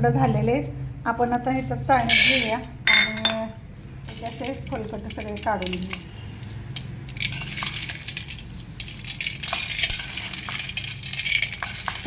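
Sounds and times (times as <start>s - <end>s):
peanuts rubbed in metal sieve: 2.0s - 2.6s, 4.0s - 12.0s.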